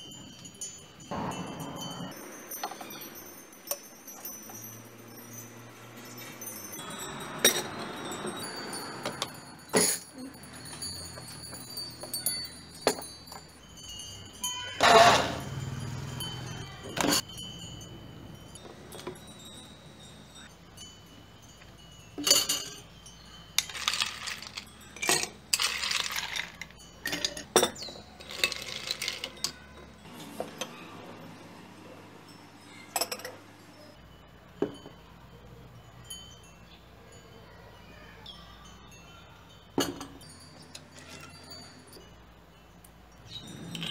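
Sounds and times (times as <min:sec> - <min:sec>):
ice cubes clinking against glass: 0:00.0 - 0:17.9, 0:21.5 - 0:30.0, 0:39.7 - 0:43.9
glassware and utensils knocking: 0:01.0 - 0:04.7, 0:06.2 - 0:08.3, 0:09.0 - 0:13.6, 0:22.1 - 0:22.9, 0:23.6 - 0:30.8, 0:32.9 - 0:33.4, 0:34.6 - 0:35.2, 0:39.8 - 0:41.6.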